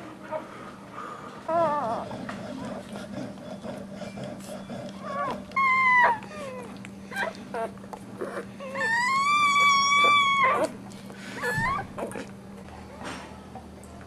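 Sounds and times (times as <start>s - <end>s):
puppy squealing and yelping: 5.1s - 10.8s, 11.4s - 12.2s.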